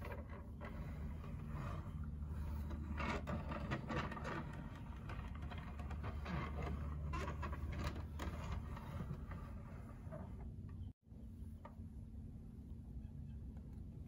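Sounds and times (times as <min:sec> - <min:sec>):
wood scraping and knocking on wood: 0:00.0 - 0:10.9
steady low hum: 0:00.0 - 0:14.0.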